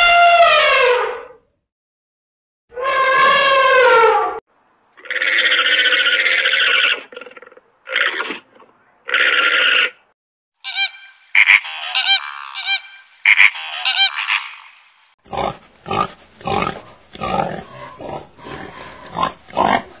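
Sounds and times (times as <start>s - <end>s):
high-pitched animal calls: 10.6s - 14.9s.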